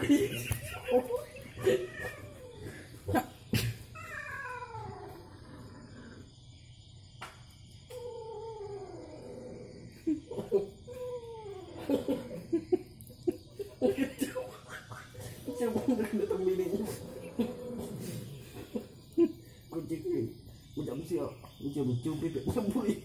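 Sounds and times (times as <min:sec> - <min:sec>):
cat yowling angrily: 0:01.5 - 0:02.7, 0:03.9 - 0:05.4.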